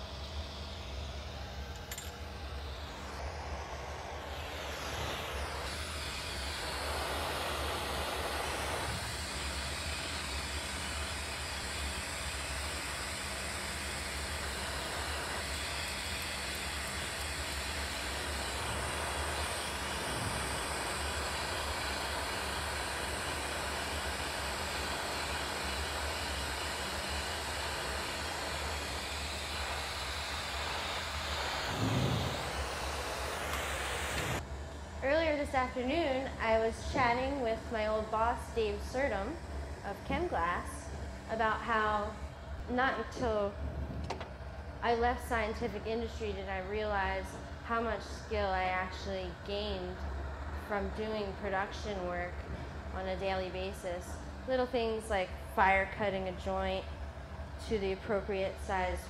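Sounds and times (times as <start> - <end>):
low steady hum: 0.0 - 59.0
torch flames rushing: 2.6 - 34.4, 43.2 - 44.6.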